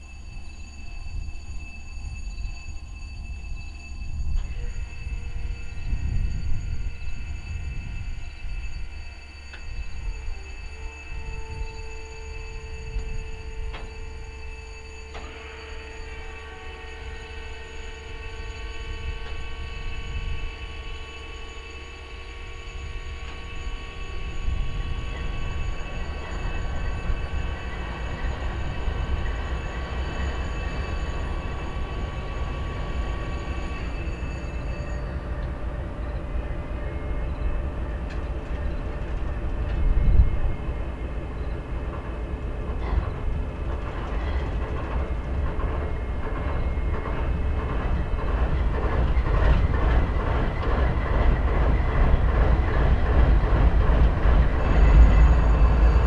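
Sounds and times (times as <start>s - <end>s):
train wheels clattering: 4.0s - 56.0s
diesel locomotives idling: 12.6s - 56.0s.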